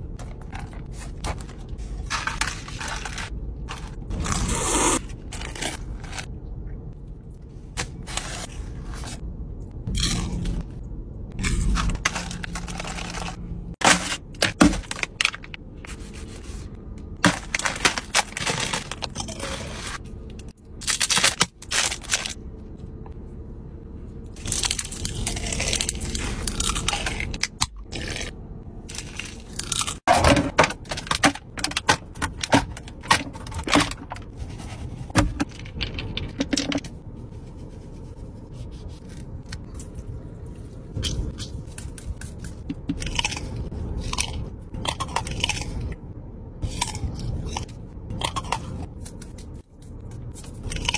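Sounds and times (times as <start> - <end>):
food crackles and crunches: 24.3 - 30.1, 46.6 - 50.9.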